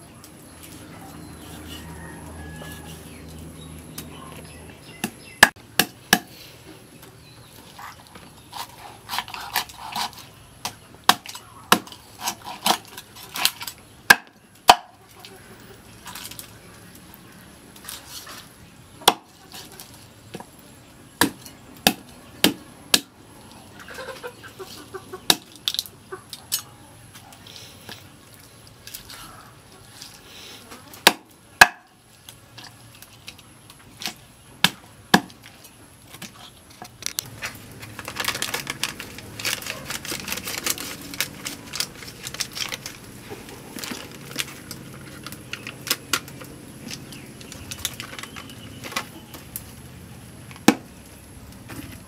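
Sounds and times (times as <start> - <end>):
cleaver chopping on wooden block: 19.0 - 19.3, 31.0 - 31.9
plastic packet crackling: 37.0 - 49.0.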